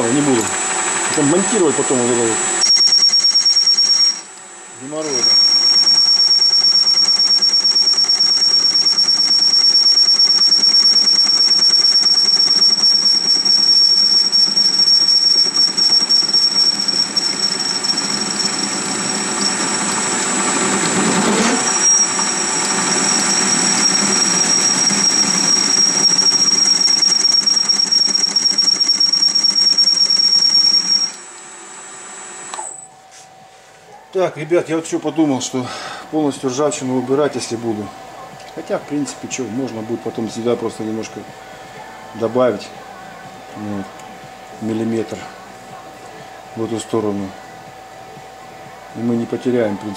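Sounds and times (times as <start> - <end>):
lathe tool cutting with whistle: 0.0 - 32.9
metal lathe running: 0.0 - 33.0, 34.4 - 49.9.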